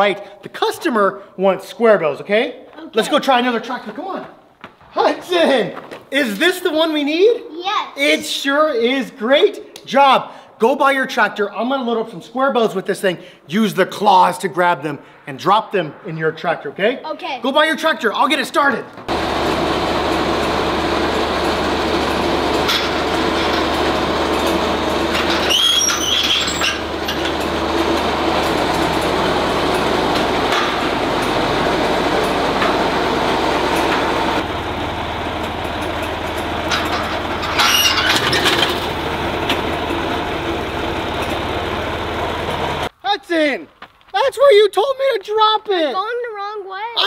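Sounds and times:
tractor engine running: 19.1s - 42.9s
high squeaks: 24.4s - 27.5s, 36.8s - 39.0s.

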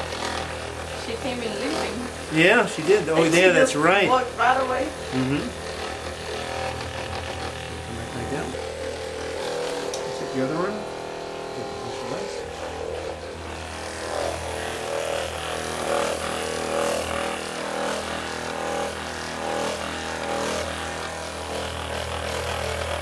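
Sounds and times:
massage gun motor hum: 0.0s - 23.0s
massage gun pounding: 0.0s - 23.0s.

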